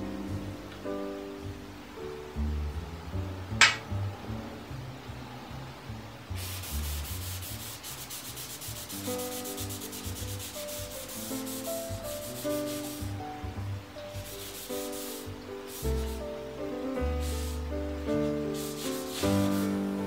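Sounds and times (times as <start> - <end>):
soft background music: 0.0 - 20.0
tissue rubbing on sword blade: 6.4 - 13.2, 14.2 - 16.3, 18.3 - 19.9.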